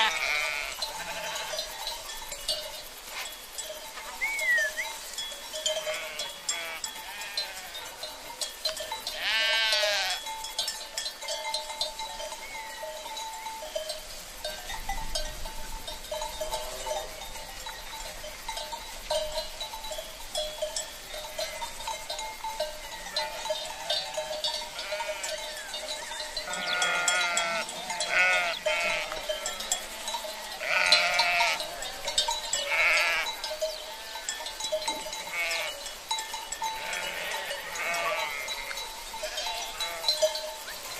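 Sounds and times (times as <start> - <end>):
sheep and lambs bleating: 0.0 - 1.8, 5.6 - 10.8, 22.4 - 35.9, 36.5 - 40.5.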